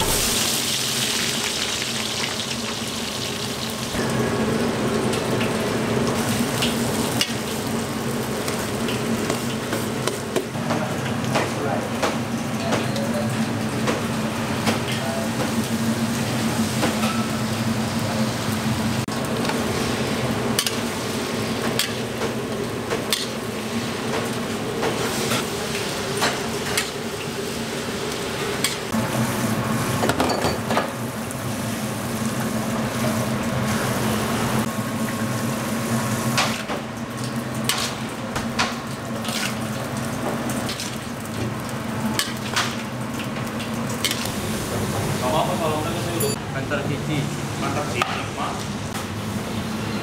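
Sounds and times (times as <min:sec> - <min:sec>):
beans sizzling in wok: 0:00.0 - 0:04.0.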